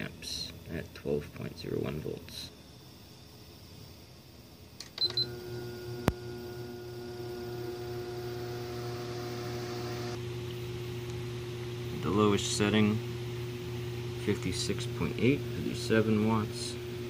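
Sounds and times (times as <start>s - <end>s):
fan motor humming: 5.0s - 17.0s.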